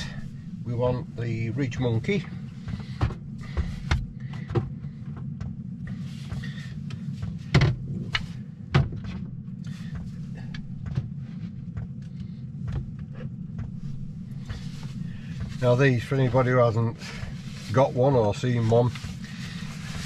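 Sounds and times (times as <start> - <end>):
steady low hum: 0.0 - 20.0
knocks and clatter of objects: 1.7 - 5.6, 6.2 - 13.8.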